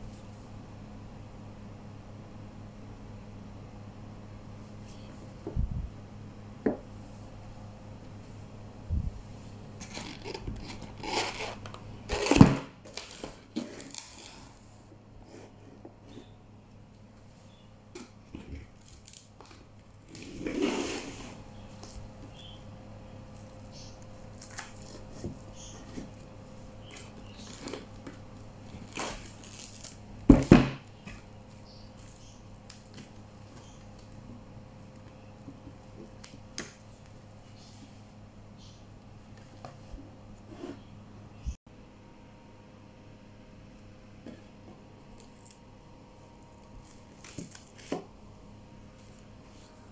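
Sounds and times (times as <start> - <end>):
plastic cling wrap crinkling: 9.8 - 14.6, 18.0 - 20.2, 26.8 - 30.5
metal tray scraping on wood: 20.3 - 21.4.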